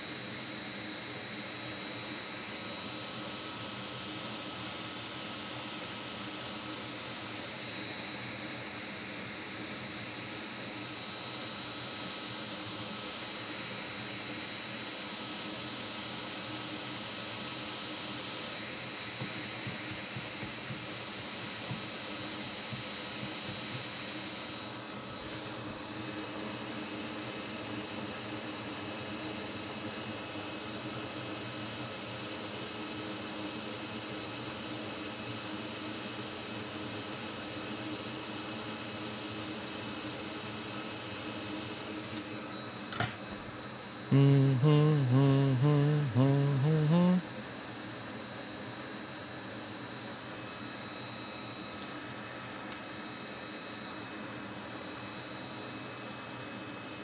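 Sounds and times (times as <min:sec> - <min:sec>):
faint high whine: 0:41.7 - 0:47.4.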